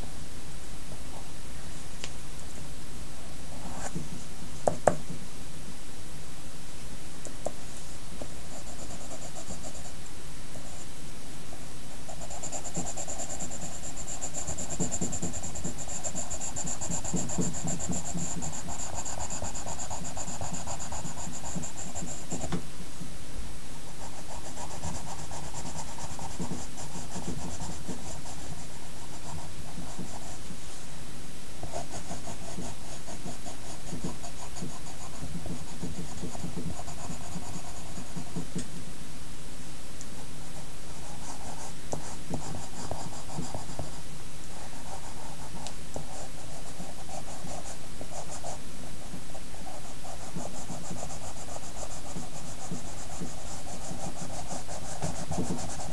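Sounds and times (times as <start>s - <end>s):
pencil shading on paper: 8.5s - 10.0s, 12.1s - 22.6s, 24.0s - 30.4s, 31.6s - 38.5s, 44.6s - 55.9s.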